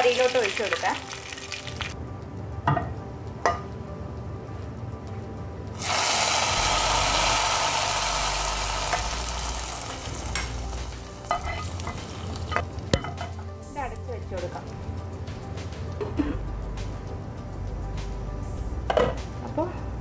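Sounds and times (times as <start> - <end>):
hot oil hissing sizzle: 0.0 - 2.0, 5.7 - 12.9.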